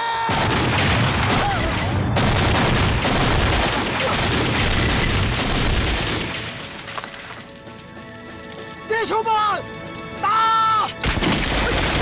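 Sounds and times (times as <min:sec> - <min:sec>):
explosion roar with crackling: 0:00.3 - 0:07.0.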